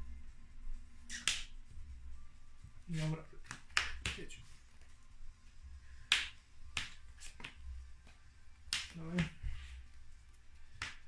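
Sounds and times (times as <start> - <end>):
trading cards clicking on playmat: 3.4 - 4.3, 6.0 - 9.4, 10.7 - 11.0.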